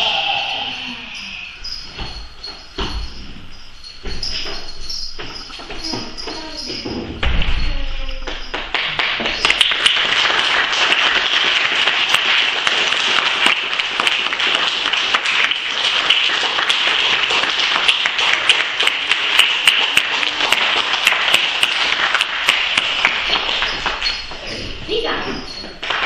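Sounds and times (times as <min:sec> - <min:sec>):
children applauding: 0:08.2 - 0:24.4, 0:25.8 - 0:26.0.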